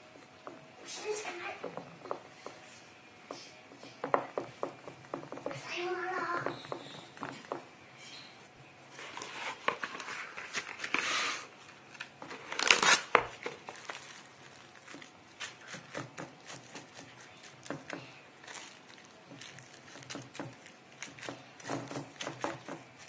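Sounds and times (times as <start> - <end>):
cling film crinkling: 9.0 - 17.7, 18.4 - 22.2.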